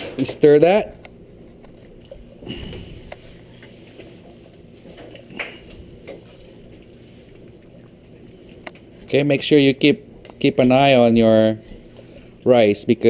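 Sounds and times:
spoon swishing in water: 1.8 - 9.1.

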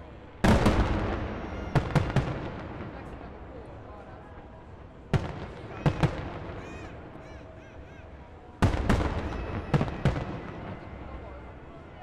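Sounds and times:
fireworks bursting with sharp bangs: 0.4 - 4.2, 5.1 - 7.2, 8.6 - 11.6.

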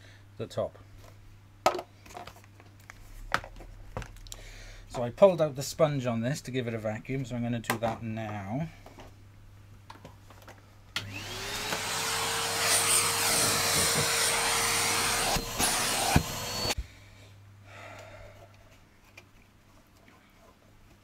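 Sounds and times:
vacuum cleaner motor whining: 11.0 - 16.8.

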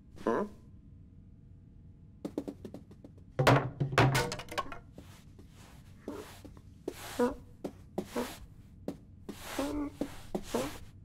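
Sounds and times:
loud thumps: 3.4 - 4.7
broom dragged along floor: 5.0 - 7.4, 8.0 - 8.5, 9.3 - 10.9.

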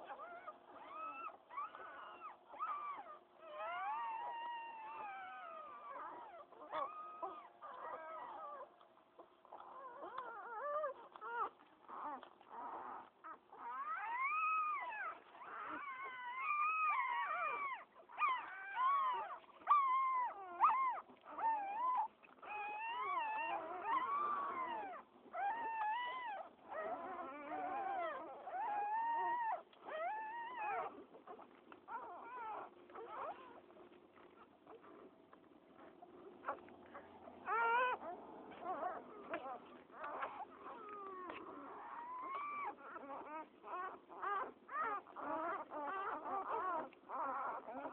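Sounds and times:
puppies squealing: 0.0 - 8.8, 9.5 - 34.9, 36.4 - 47.9.

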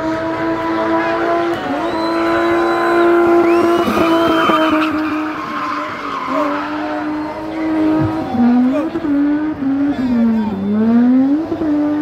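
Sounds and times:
car engine at high revs: 0.0 - 12.0
tyres screeching: 1.9 - 9.0.

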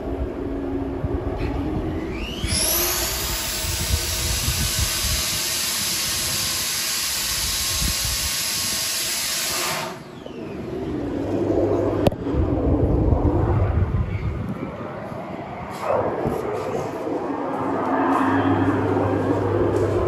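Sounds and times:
submerged drill whirring: 0.5 - 12.9.

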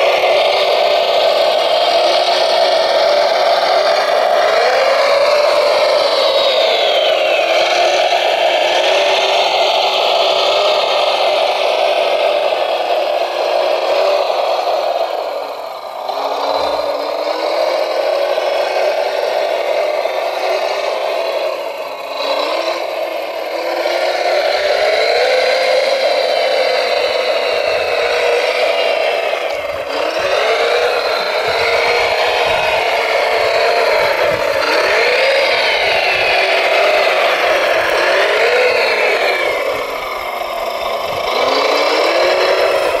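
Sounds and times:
toy loader motors whining: 0.0 - 43.0.

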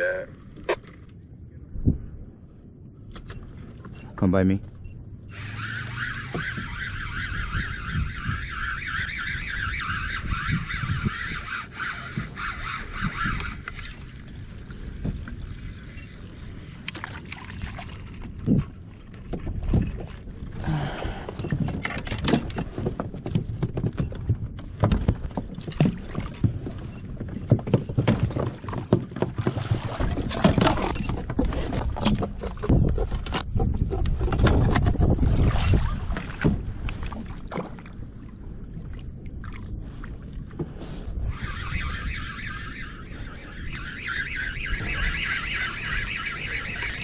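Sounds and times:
paddle splashes: 16.9 - 21.3, 25.3 - 33.3, 34.0 - 41.0.

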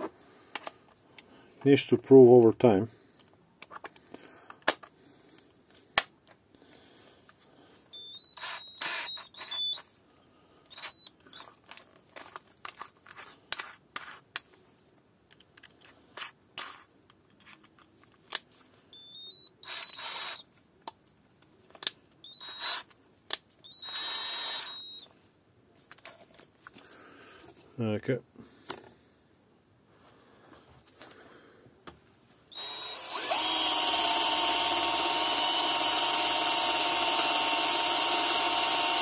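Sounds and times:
cordless drill whine: 7.8 - 9.9, 10.6 - 11.5, 18.9 - 20.5, 22.2 - 22.9, 23.6 - 25.1, 32.5 - 39.0
drill bits and chuck clicking: 7.9 - 9.8, 10.7 - 13.3, 18.3 - 20.5, 21.7 - 25.1, 32.5 - 39.0.

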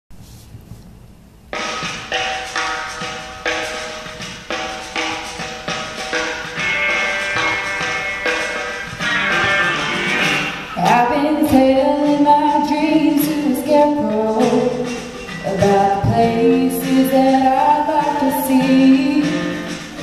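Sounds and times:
woman singing into microphone: 10.8 - 19.7.

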